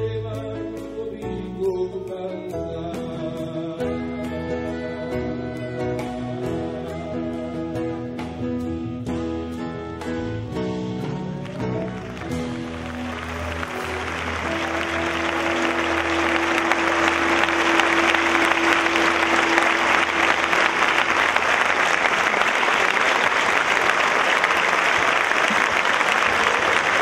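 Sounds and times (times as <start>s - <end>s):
audience applauding: 11.4s - 27.0s.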